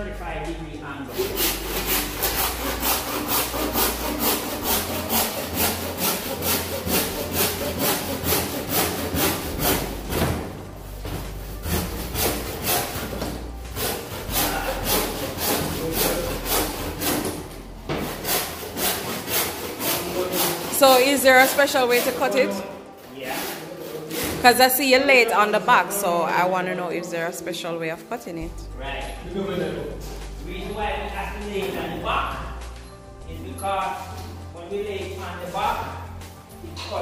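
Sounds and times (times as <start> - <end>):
hand saw cutting fibreboard: 1.1 - 22.6, 23.2 - 24.7.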